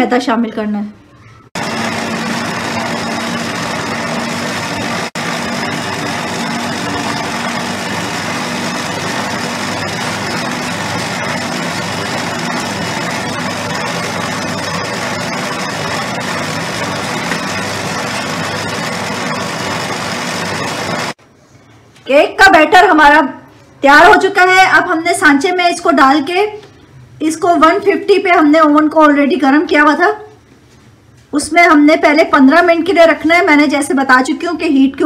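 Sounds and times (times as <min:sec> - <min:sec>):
stand mixer running: 0:01.6 - 0:21.2.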